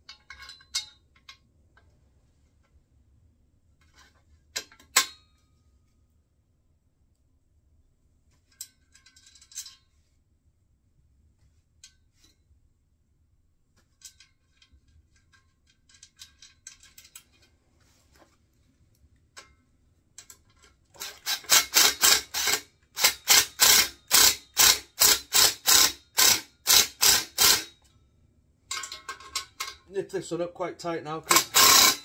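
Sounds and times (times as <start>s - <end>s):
ratchet spanner rasping: 21.0s - 27.8s, 31.3s - 32.0s
nuts and washers clinking: 28.7s - 29.9s, 31.3s - 32.0s.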